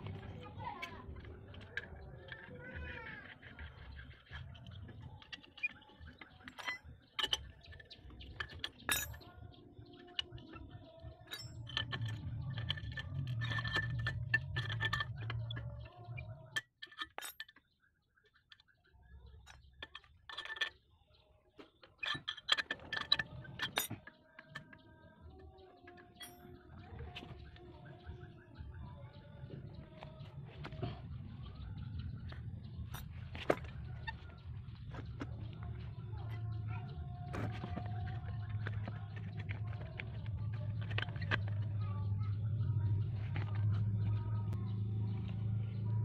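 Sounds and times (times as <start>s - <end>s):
low background hum: 22.1s - 46.0s.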